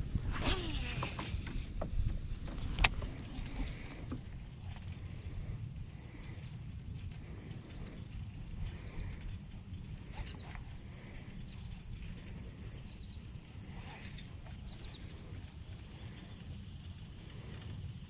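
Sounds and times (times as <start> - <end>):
steady low rumble: 0.0 - 13.9.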